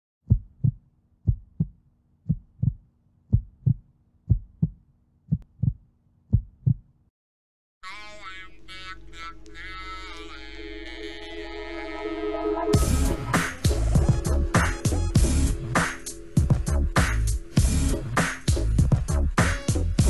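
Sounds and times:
heartbeat thumps: 0:00.3 - 0:06.9, 0:12.8 - 0:15.6, 0:16.4 - 0:17.8, 0:18.5 - 0:19.3
music: 0:09.8 - 0:20.0.

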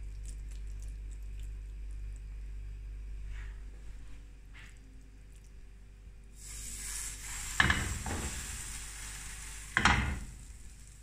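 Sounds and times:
meat sizzling on a grill pan: 0:06.4 - 0:11.0.

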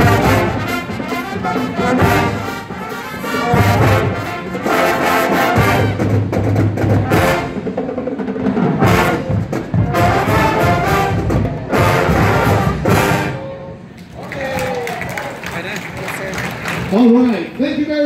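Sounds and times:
marching band playing: 0:00.0 - 0:13.9.

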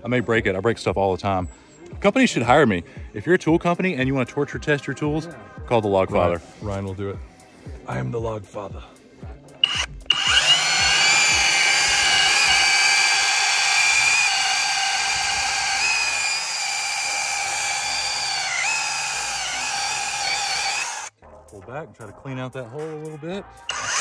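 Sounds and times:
hammer drill boring into wood: 0:09.6 - 0:21.1, 0:23.6 - 0:24.0.

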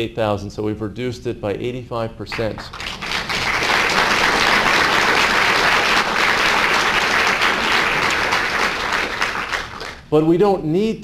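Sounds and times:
audience applauding: 0:02.3 - 0:10.0.

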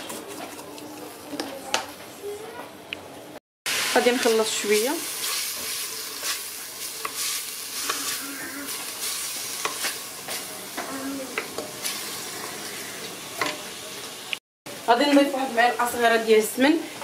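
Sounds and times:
meat sizzling in oil: 0:03.7 - 0:16.6.

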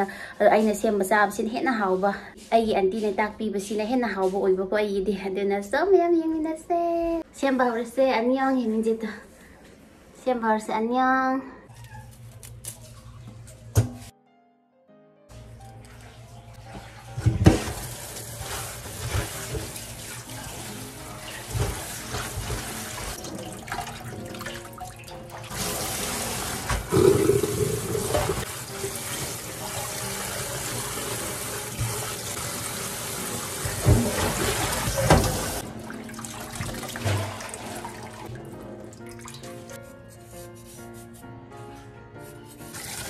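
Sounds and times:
tap water running into sink: 0:16.6 - 0:39.8.

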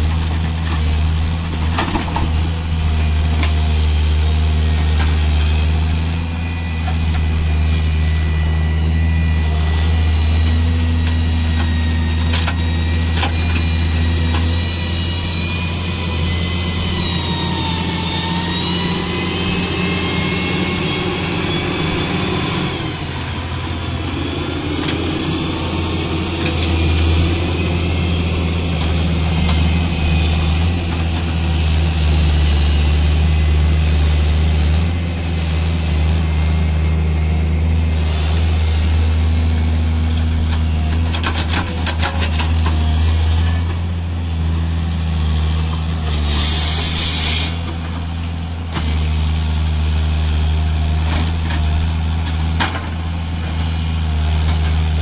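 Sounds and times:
excavator diesel engine running: 0:00.0 - 0:55.0
high whine: 0:05.6 - 0:42.2.

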